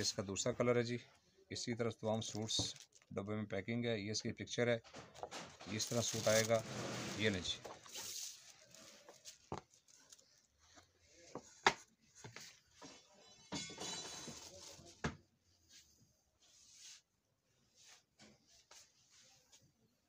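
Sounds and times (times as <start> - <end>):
paper and cloth rustling: 2.1 - 3.1, 4.9 - 12.9.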